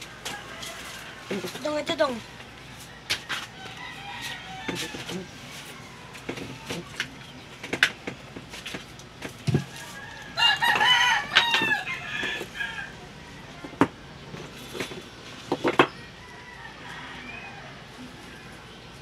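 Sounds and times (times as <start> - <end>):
rooster crowing: 0.0 - 1.6, 3.2 - 6.6, 9.6 - 13.6, 16.0 - 18.5.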